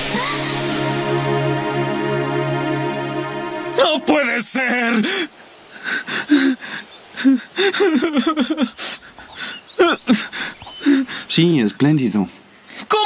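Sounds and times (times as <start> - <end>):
young man sobbing: 4.9 - 11.3.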